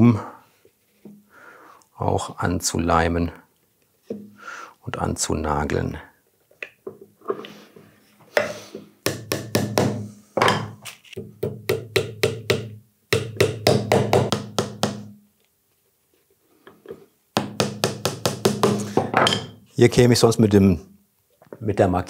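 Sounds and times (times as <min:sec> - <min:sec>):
small hammer tapping nails: 0:11.4 - 0:15.2.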